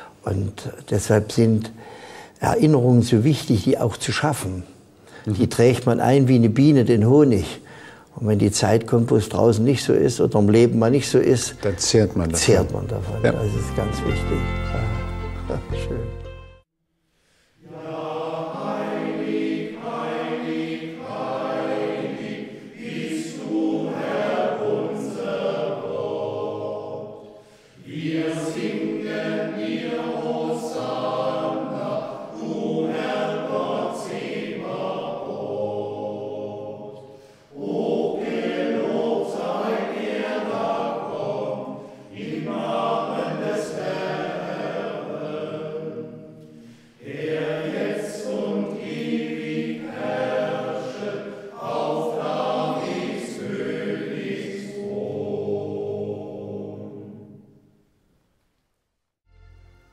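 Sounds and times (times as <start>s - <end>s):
choir singing in several voices: 10.6s - 16.4s, 17.6s - 57.7s.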